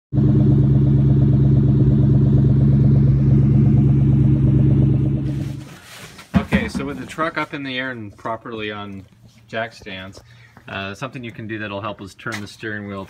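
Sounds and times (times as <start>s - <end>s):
car engine idling: 0.1s - 11.8s.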